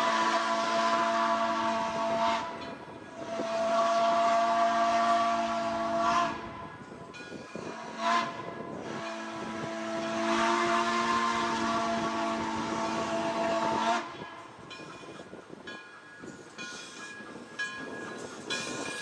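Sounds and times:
steam locomotive whistle blasts: 0.0s - 6.9s, 7.5s - 14.4s.

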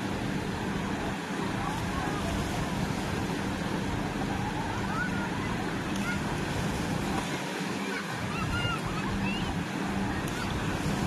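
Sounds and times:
steady low hum: 0.0s - 11.0s
water churning against concrete wall: 0.0s - 11.0s
shouts and voices of swimmers: 3.6s - 11.0s.

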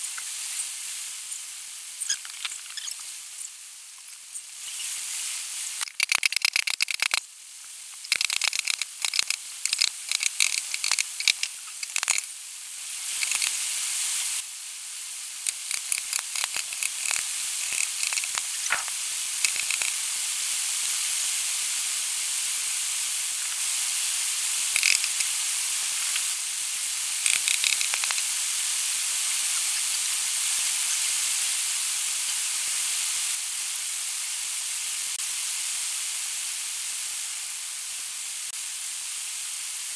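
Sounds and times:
spray nozzle hissing: 8.0s - 14.4s, 15.2s - 21.1s, 23.3s - 29.8s.

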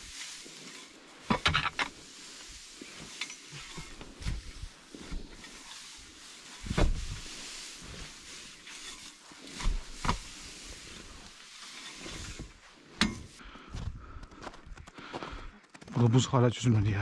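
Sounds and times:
hay rustling with pitchfork: 0.0s - 13.4s.

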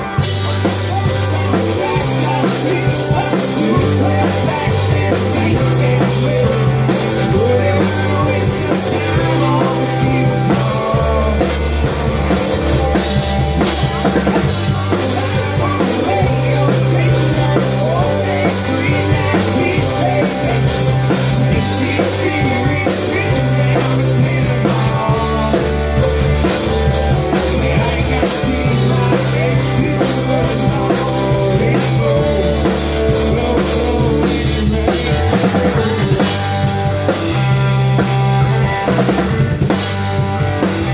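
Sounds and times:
drum kit with cymbal hits: 0.0s - 40.9s
electric guitar: 0.0s - 40.9s
low bass notes: 0.0s - 40.9s.

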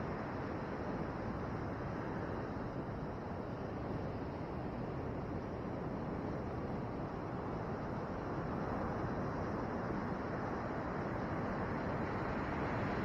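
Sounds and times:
ocean surf breaking on beach: 8.3s - 13.0s.

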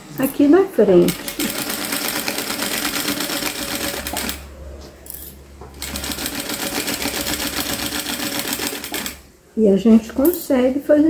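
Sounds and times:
sewing machine stitching: 1.1s - 4.4s, 5.8s - 9.2s.

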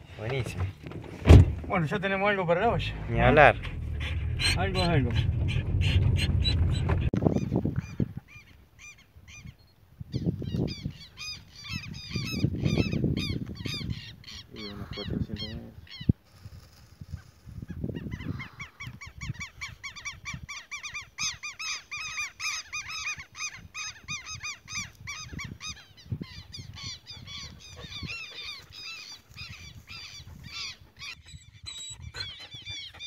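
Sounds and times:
birds calling: 0.0s - 16.2s, 17.2s - 33.0s
wind bumps on microphone: 3.1s - 8.3s, 11.7s - 20.5s, 24.2s - 28.2s.

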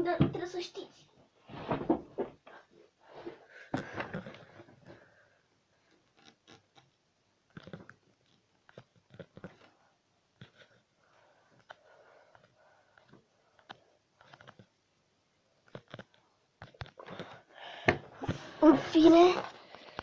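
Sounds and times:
rustling and bumping on bed: 1.4s - 2.4s.

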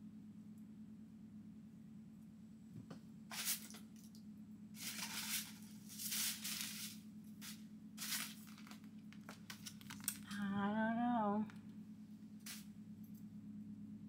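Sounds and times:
packaging rustling: 4.8s - 7.0s, 8.0s - 10.3s.

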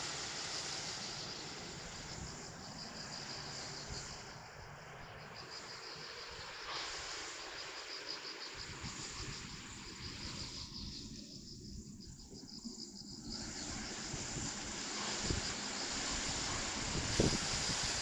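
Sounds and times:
insects trilling: 0.0s - 18.0s
wind rumble on microphone: 8.6s - 18.0s.

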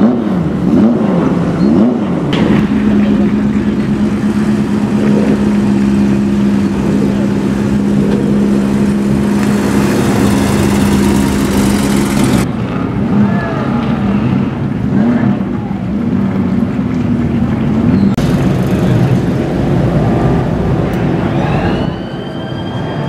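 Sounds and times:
car engine revving: 0.0s - 13.2s.

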